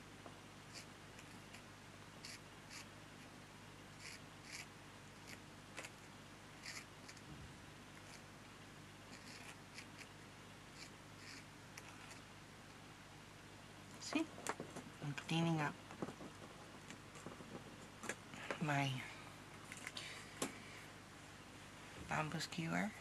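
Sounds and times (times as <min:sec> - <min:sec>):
low background hiss: 0:00.0 - 0:23.0
hand tool scratching paper: 0:04.0 - 0:06.0, 0:06.6 - 0:07.2, 0:09.1 - 0:10.1.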